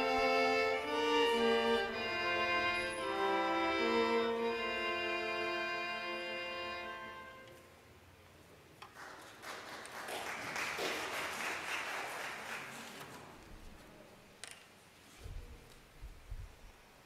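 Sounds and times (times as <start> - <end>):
congregation applauding: 8.8 - 13.4.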